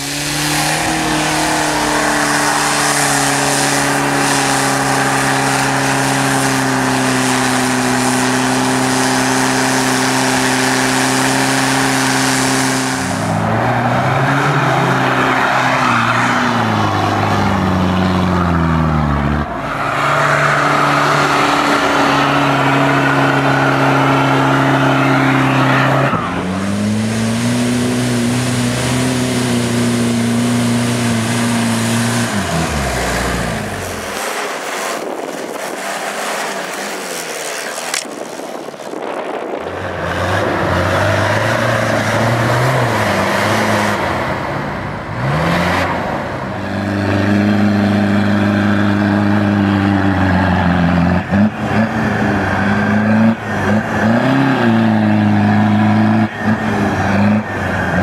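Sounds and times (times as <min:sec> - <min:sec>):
diesel engine revving under load: 0:00.0 - 0:58.0.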